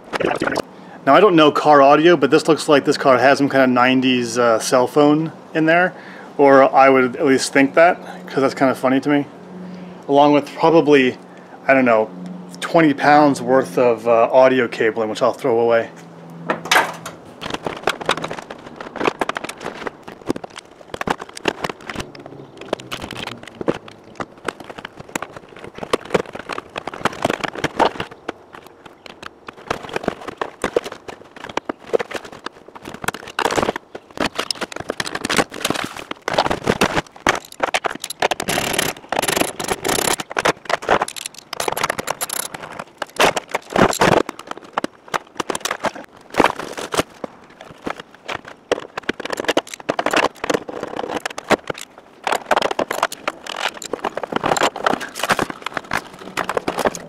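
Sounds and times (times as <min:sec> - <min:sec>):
scraping and rustling of trim: 0:16.0 - 0:57.0
plastic and cable clicks: 0:16.6 - 0:57.0.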